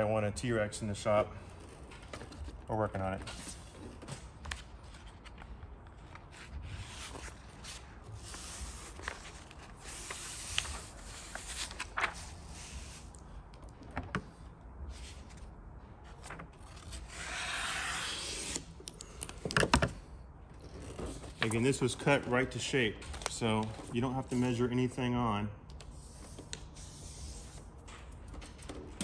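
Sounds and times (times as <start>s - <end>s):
paper backing rustling: 1.6s - 13.0s
squeegee scraping tape: 6.1s - 13.2s, 16.7s - 18.7s, 25.8s - 28.2s.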